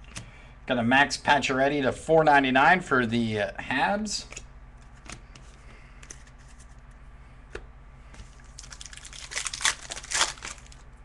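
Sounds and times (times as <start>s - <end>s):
low steady hum: 0.0s - 11.0s
wrapper crinkling and cards rustling: 8.2s - 10.9s.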